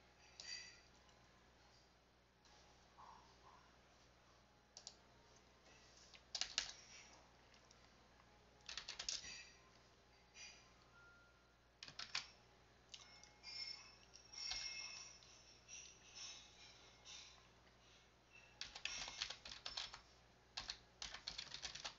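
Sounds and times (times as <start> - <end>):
keyboard keys clicking: 6.1 - 6.8, 8.6 - 9.4, 11.8 - 12.3, 14.1 - 15.0, 18.6 - 20.0, 20.6 - 21.9.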